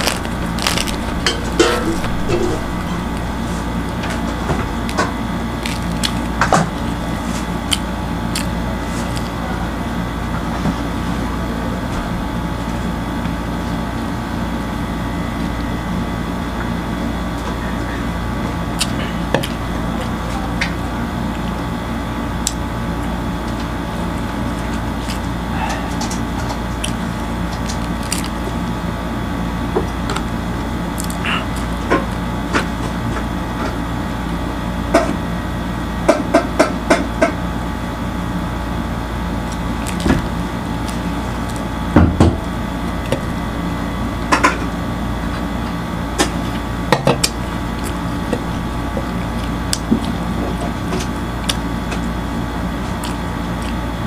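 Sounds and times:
flatbread tearing and eating: 0.0 - 9.4, 23.4 - 28.8, 38.6 - 41.9, 46.2 - 54.0
steady mechanical hum: 0.0 - 54.0.

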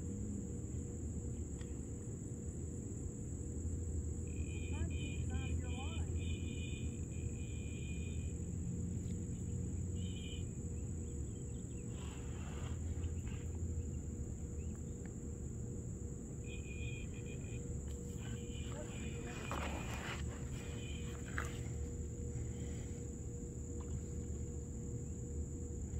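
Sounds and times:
insects chirping in pulses: 0.0 - 25.9
steady high-pitched trill: 16.4 - 19.3.

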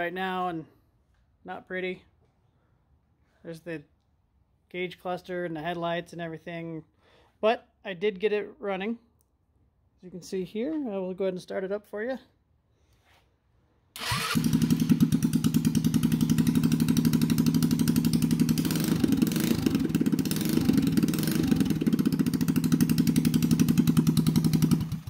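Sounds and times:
scooter engine starting and idling: 14.0 - 25.0.

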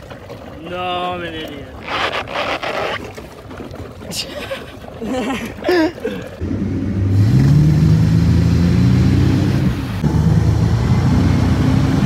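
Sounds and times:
boat engine accelerating: 6.4 - 12.0.

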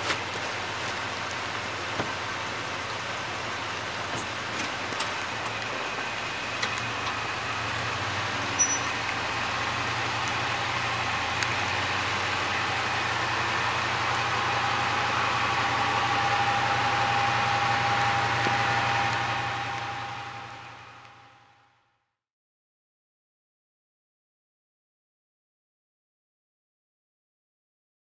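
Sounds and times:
rain hissing: 0.0 - 21.6
engine idling: 0.0 - 21.8.

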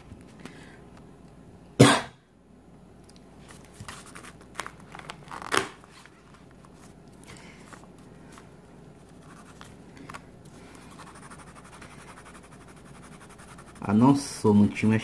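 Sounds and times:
person coughing: 1.8 - 2.2
coloured pencil scratching on paper: 9.2 - 9.6, 10.9 - 14.2.

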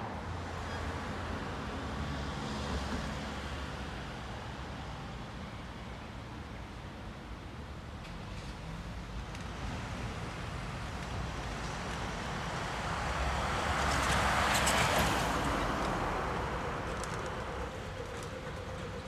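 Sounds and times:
car passing by: 9.9 - 19.0.

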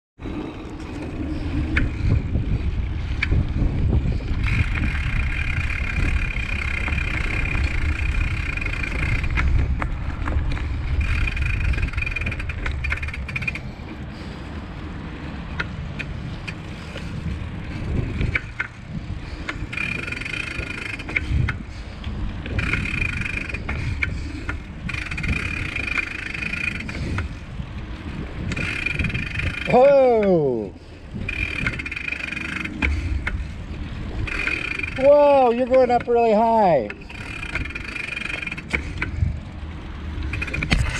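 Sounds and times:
tyre noise on pavement: 0.2 - 40.9
wind buffeting microphone: 0.2 - 40.9
scattered clicks: 19.4 - 27.3, 40.2 - 40.9.

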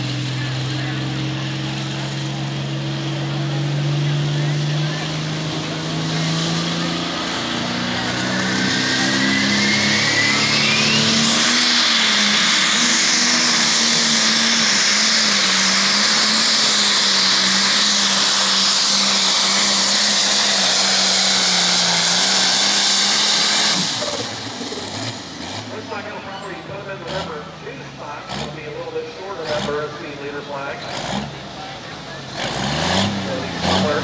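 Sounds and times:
diesel engine revving: 0.0 - 34.0
turbo whistle: 8.9 - 11.8.

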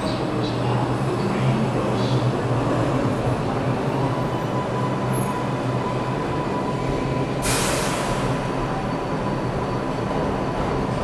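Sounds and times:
subway train rumbling to a stop: 0.0 - 11.0
air brakes hissing: 7.3 - 8.6.

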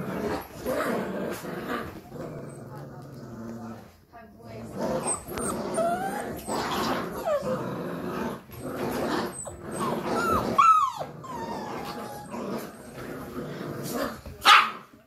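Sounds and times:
puppies growling: 0.0 - 14.4
puppy whines and yips: 5.0 - 6.5, 9.3 - 12.3.

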